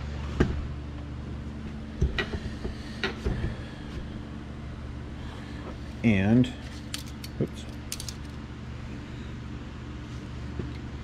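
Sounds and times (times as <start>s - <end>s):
steady low hum: 0.0s - 11.0s
metallic clicks and taps of tools: 6.9s - 8.3s.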